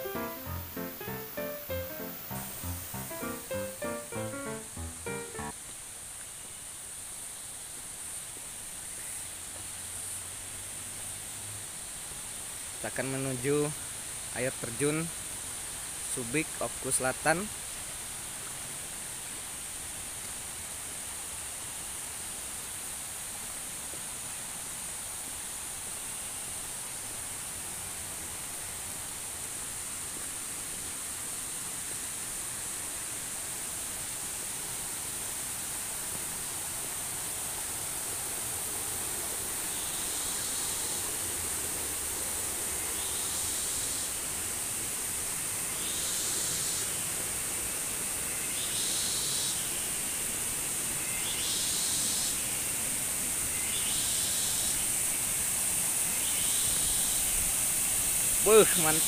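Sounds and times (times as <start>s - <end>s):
pulsing high call: 0.0s - 5.5s
rushing stream and waterfall: 0.0s - 48.8s, 49.5s - 59.0s.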